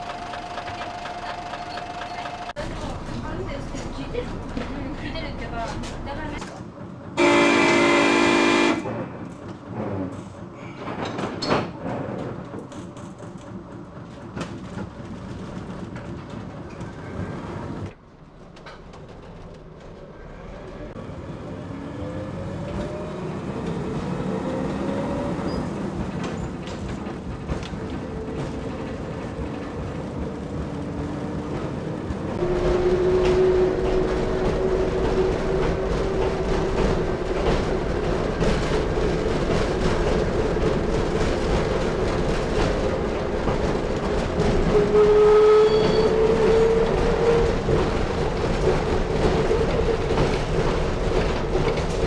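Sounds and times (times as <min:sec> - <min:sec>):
wheels clicking over rail joints: 0:00.0 - 0:07.0, 0:25.4 - 0:52.0.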